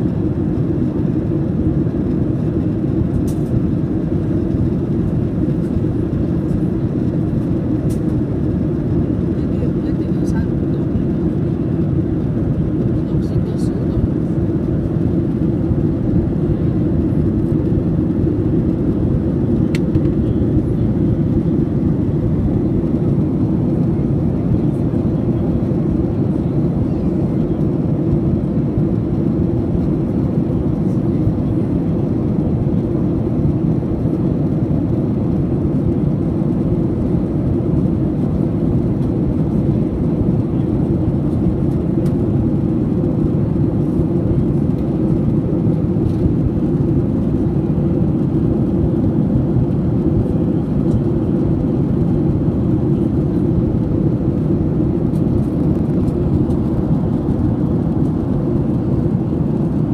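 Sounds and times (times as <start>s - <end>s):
airliner cabin drone: 0.0s - 59.9s.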